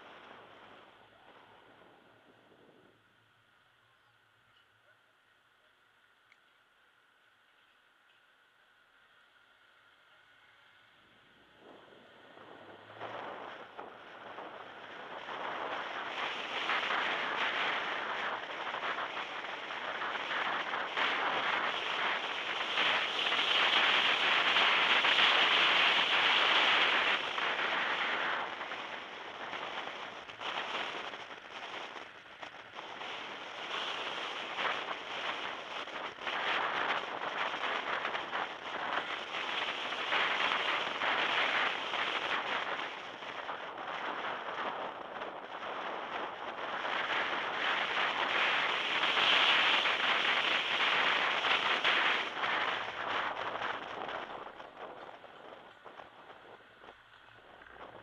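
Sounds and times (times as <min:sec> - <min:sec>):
wind noise on microphone: 0:00.0 - 0:05.0, 0:07.2 - 0:58.0
car road noise: 0:08.7 - 0:44.1.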